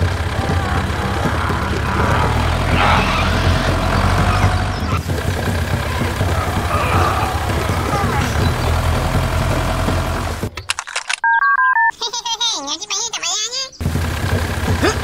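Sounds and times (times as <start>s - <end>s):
tractor engine running: 0.0s - 10.6s, 13.8s - 15.0s.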